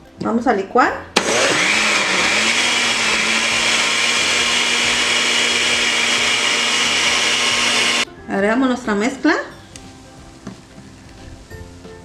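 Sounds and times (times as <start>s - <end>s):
electric blender running: 1.2s - 8.0s.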